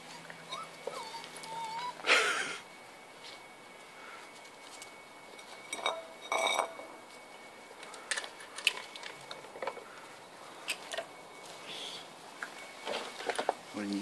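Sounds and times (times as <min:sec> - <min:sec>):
feeding bowls clinking: 0:05.3 - 0:07.2, 0:07.8 - 0:10.0, 0:12.4 - 0:13.6.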